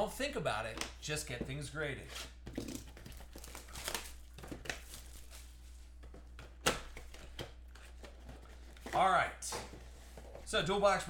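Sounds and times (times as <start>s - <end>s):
packaging crinkling and tearing: 2.6s - 5.8s.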